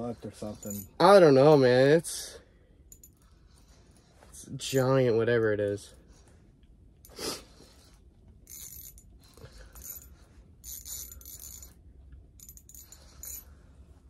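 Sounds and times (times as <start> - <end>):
fishing reel clicking and whirring: 0.3 - 0.9, 7.1 - 11.8, 12.4 - 13.5.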